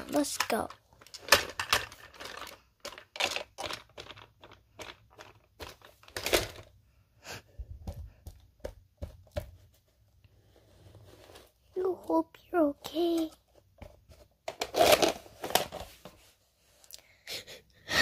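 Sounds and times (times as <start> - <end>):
toys tapping and thunking on carpet: 7.6 - 9.9.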